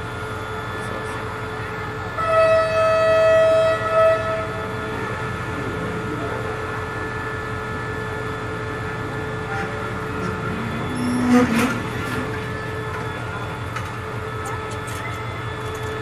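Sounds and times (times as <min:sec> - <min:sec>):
train engine hum: 0:00.0 - 0:16.0
train horn blasts: 0:02.1 - 0:05.2, 0:09.2 - 0:13.1.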